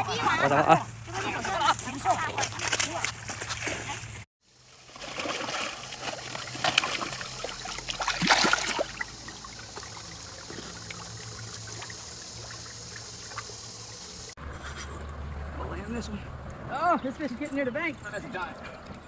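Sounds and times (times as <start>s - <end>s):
trickling rush of water: 4.5s - 14.4s
water splashing from fish in net: 4.6s - 14.0s.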